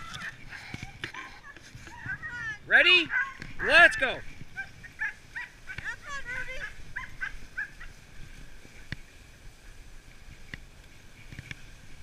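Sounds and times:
sled dogs yelping: 0:00.0 - 0:08.2
sled gliding over snow: 0:00.0 - 0:12.0.

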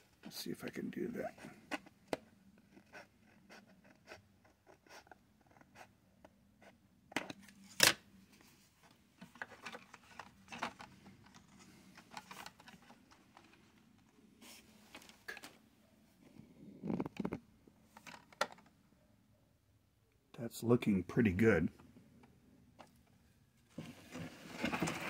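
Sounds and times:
scraping and rustling plastic: 0:09.2 - 0:13.7, 0:23.7 - 0:25.0.

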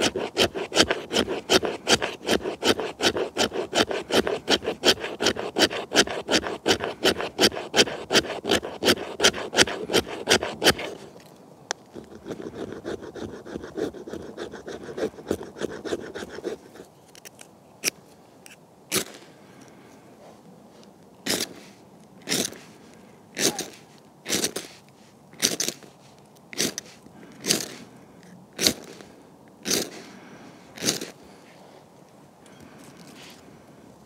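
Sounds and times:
ferro rod strike rasp: 0:00.0 - 0:11.0
knife scraping wood: 0:00.0 - 0:19.2, 0:21.3 - 0:22.7, 0:23.4 - 0:26.0, 0:26.6 - 0:27.8, 0:28.6 - 0:30.1, 0:30.8 - 0:31.2.

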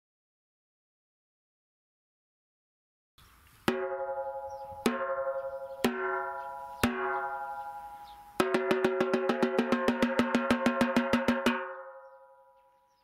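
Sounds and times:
snare drum hits ringing: 0:03.7 - 0:11.9
fast snare drum roll: 0:08.4 - 0:11.7.

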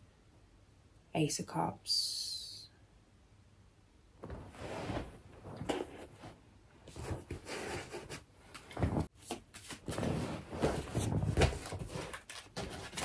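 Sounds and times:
cards rustling while shuffled: 0:10.6 - 0:13.0.

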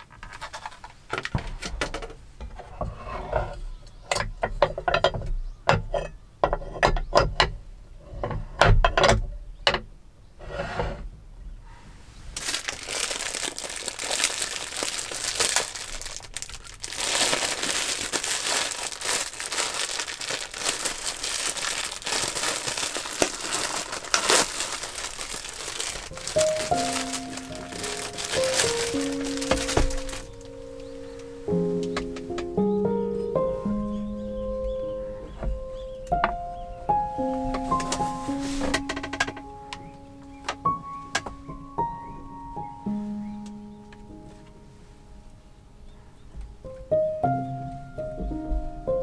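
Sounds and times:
plastic bag crinkling: 0:00.0 - 0:01.3, 0:12.4 - 0:32.4
sandwich maker plates clacking: 0:03.9 - 0:07.6.

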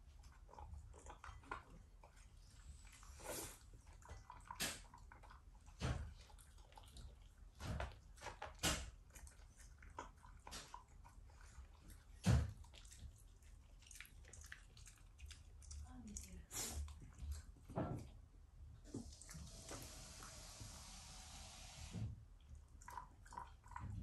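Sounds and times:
dog mouth smacks and licks: 0:03.9 - 0:17.7.

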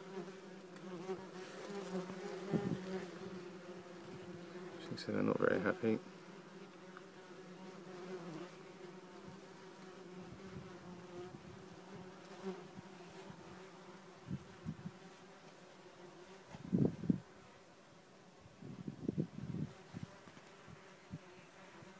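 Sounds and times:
wasps buzzing: 0:00.0 - 0:17.5.

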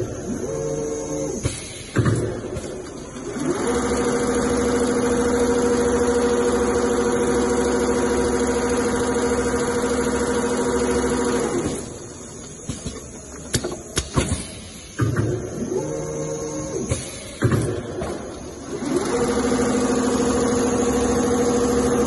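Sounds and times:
sewing machine motors running: 0:00.0 - 0:01.6, 0:02.5 - 0:12.3, 0:17.7 - 0:22.0.

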